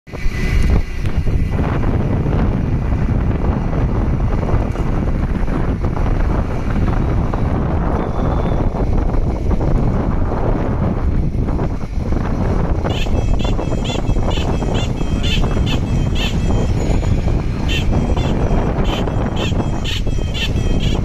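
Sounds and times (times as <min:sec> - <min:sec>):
vehicle running and road noise: 0:00.1 - 0:21.0
wind rumbling on microphone: 0:00.1 - 0:21.0.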